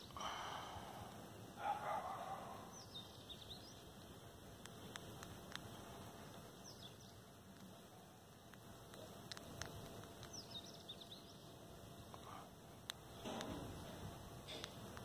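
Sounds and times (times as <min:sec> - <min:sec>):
birds chirping: 0:00.0 - 0:15.0
sharp clicks: 0:04.0 - 0:06.4, 0:08.3 - 0:10.6.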